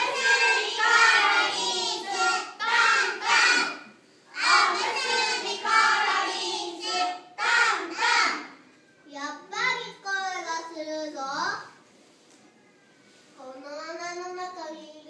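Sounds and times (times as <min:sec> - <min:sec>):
young children singing: 0:00.0 - 0:08.7.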